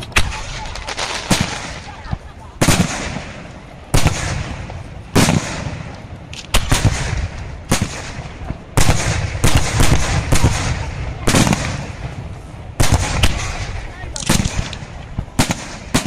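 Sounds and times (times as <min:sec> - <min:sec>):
fireworks bursting with rumbling: 0:00.0 - 0:16.0.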